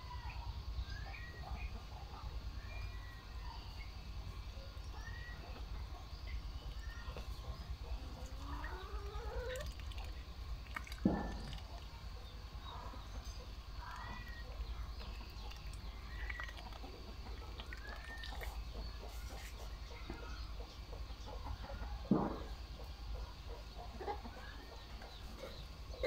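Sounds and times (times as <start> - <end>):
birds chirping: 0.0 - 26.0
steady low hum: 0.0 - 26.0
sudden knock: 22.1 - 22.5.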